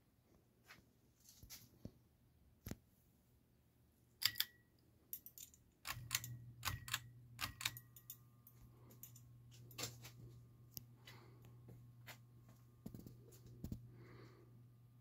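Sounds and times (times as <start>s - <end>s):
ceiling fan motor humming: 5.1s - 15.0s
sharp clicks: 5.2s - 8.2s.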